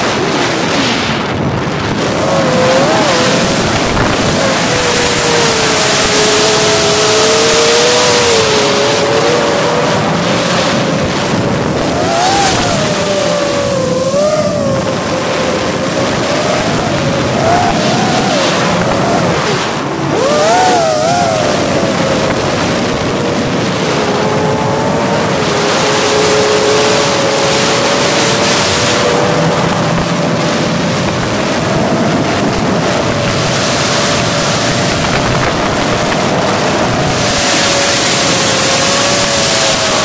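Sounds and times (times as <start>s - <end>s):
drone motors whining: 0.0s - 40.0s
wind noise on microphone: 0.0s - 40.0s.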